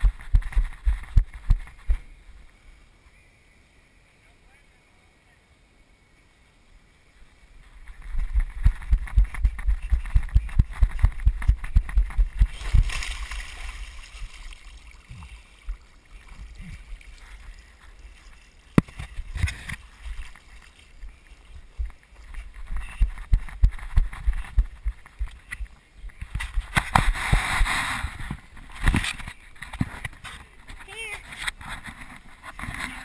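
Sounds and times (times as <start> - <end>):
running footsteps thumping: 0.0 - 2.0, 8.0 - 13.1
splash: 12.4 - 21.0.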